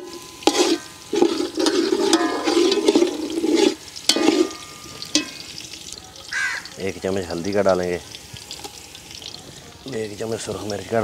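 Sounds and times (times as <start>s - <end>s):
spatula scraping pot: 0.0s - 5.6s
onions sizzling in oil: 0.0s - 11.0s.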